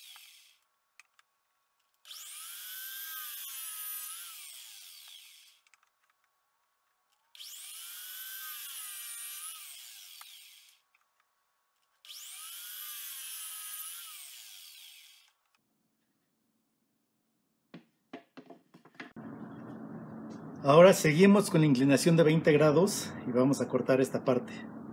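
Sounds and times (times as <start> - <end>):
miter saw motor whine: 0.0 - 0.6, 2.1 - 5.6, 7.4 - 10.8, 12.1 - 15.3
wood knocking: 17.7 - 19.2.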